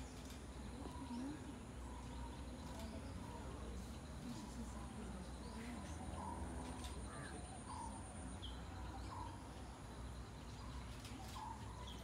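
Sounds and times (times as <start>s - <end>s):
birds calling: 0.0s - 12.0s.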